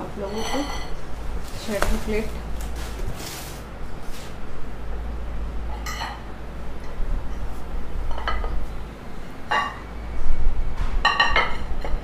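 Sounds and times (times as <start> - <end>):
plates clinking on a floor: 0.2 - 1.0.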